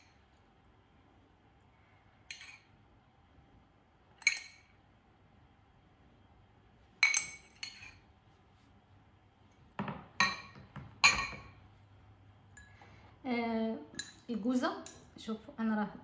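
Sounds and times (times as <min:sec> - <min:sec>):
teaspoon clinking against glass bowl: 0:04.2 - 0:04.7, 0:07.0 - 0:08.0, 0:13.9 - 0:15.2.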